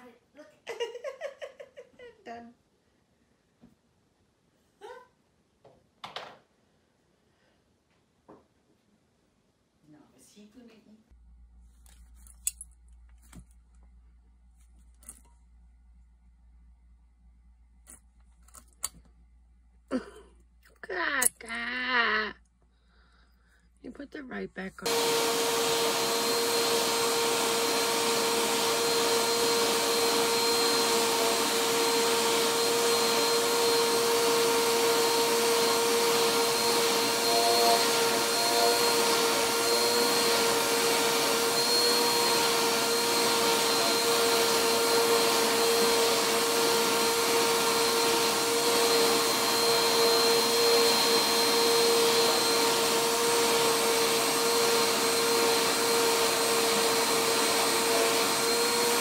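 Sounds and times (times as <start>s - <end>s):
vacuum cleaner running: 24.2s - 59.0s.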